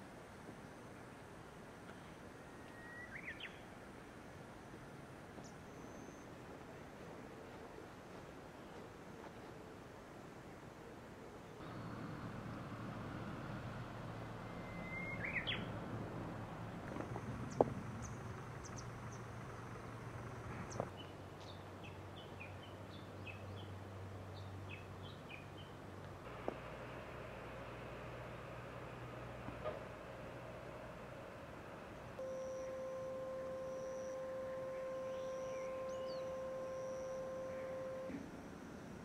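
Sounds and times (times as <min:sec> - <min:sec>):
birds chirping: 0:11.5 - 0:23.7, 0:28.1 - 0:38.9
low steady hum: 0:11.5 - 0:39.0.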